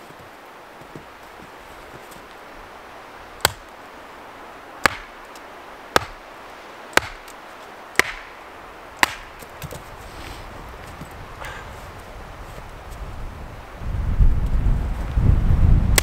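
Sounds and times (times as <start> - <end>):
axe chopping wood: 3.4 - 3.7, 4.8 - 5.2, 5.9 - 6.2, 6.9 - 8.3, 9.0 - 9.9.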